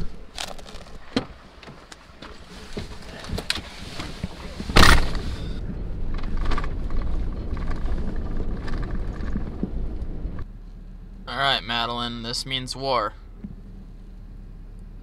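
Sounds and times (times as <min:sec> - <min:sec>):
truck engine rumbling: 0:00.0 - 0:15.0
truck door slamming: 0:04.7 - 0:05.3.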